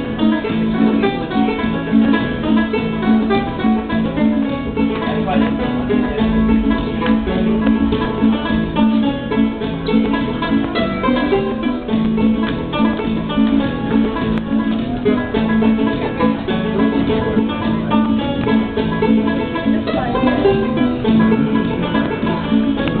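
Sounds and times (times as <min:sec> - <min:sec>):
banjo playing: 0:00.0 - 0:23.0.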